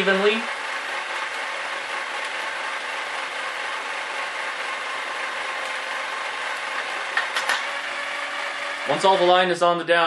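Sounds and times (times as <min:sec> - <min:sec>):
electric motor winding line: 0:00.0 - 0:09.7.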